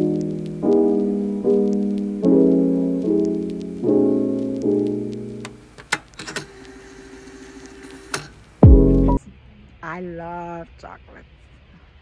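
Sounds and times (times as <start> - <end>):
piano chords: 0.0 - 5.8, 8.6 - 9.2.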